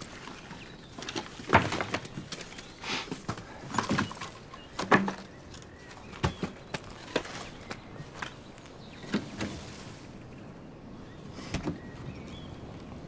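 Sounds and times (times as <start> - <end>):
wood and debris knocking and scraping: 0.0 - 8.4.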